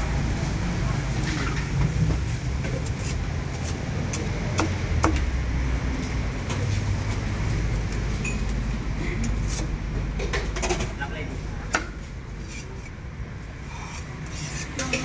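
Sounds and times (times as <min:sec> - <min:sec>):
cleaver chopping on wooden block: 0:04.5 - 0:05.2.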